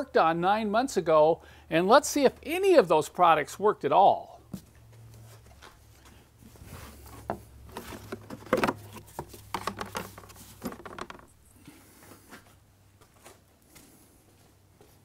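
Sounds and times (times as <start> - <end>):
plastic cover clicking and rattling: 7.3 - 11.3.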